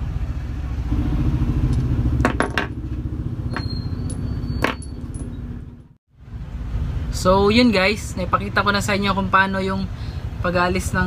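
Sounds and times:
steady low rumble: 0.7 - 9.0
metal bolts clinking: 3.5 - 5.8.

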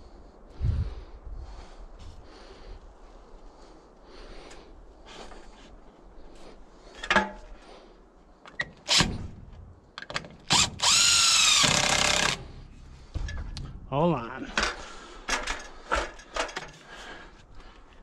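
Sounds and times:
cordless drill driving a screw: 10.5 - 12.5.

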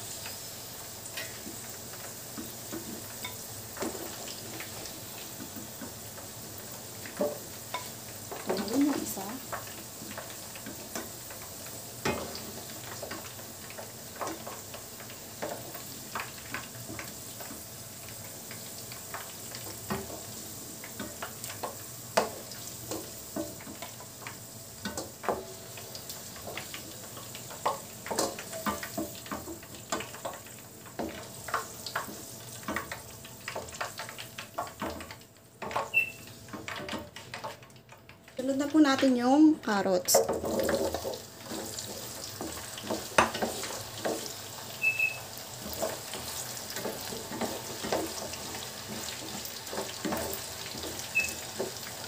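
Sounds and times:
potatoes sizzling in hot oil: 0.0 - 52.0
wooden spatula tapping a pan: 7.0 - 37.7, 40.0 - 44.4.

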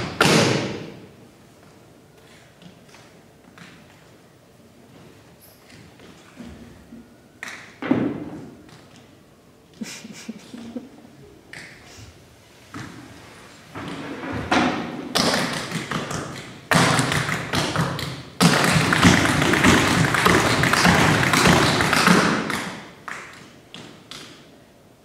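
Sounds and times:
rapid tapping and thumping: 15.1 - 23.9.

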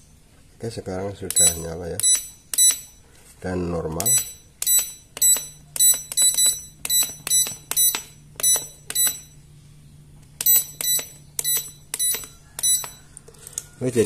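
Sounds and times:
keypad beeps: 1.3 - 3.0, 4.0 - 9.4, 10.4 - 13.1.

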